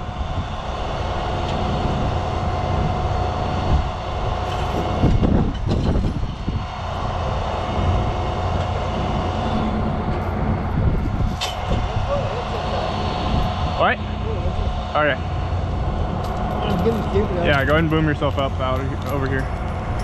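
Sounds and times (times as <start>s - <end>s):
diesel truck engine rumbling: 0.0s - 20.0s
steady whine: 0.0s - 20.0s.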